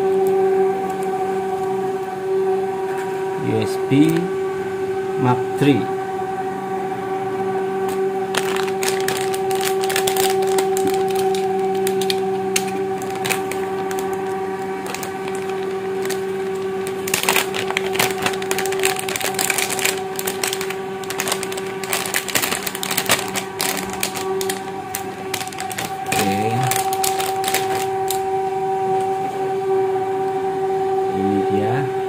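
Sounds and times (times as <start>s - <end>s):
steady hum: 0.0s - 32.0s
plastic packaging crinkling: 7.9s - 29.1s.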